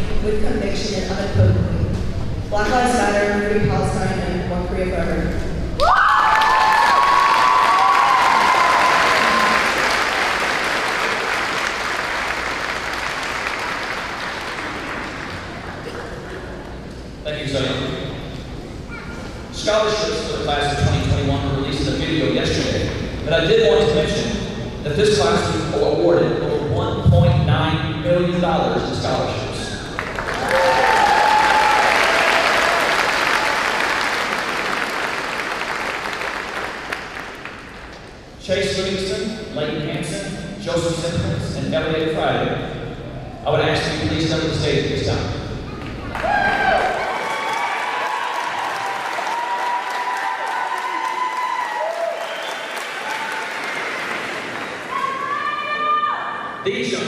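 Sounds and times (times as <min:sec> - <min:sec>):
audience applauding: 0:05.8 - 0:16.9, 0:29.8 - 0:38.0, 0:45.8 - 0:55.4
crowd cheering: 0:05.8 - 0:16.9, 0:29.7 - 0:37.8, 0:45.7 - 0:56.6.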